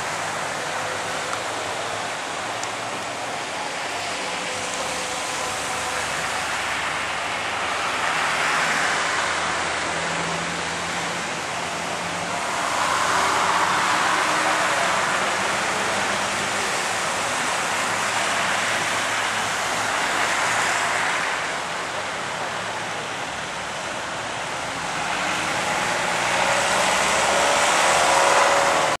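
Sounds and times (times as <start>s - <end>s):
passing traffic hiss: 0.0s - 29.0s
tyres hissing on wet road: 0.0s - 29.0s.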